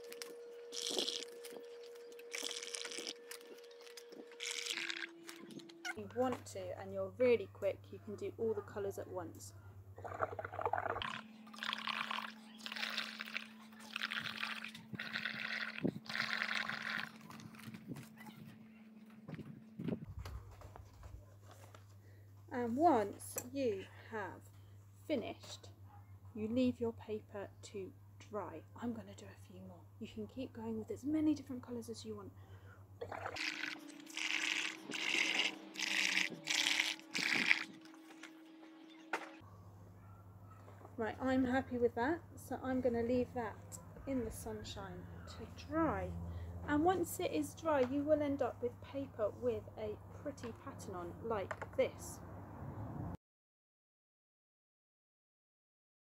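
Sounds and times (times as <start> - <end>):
blowing bubbles through a straw: 0.7 - 1.6, 2.3 - 5.7, 10.0 - 17.6, 33.0 - 38.3.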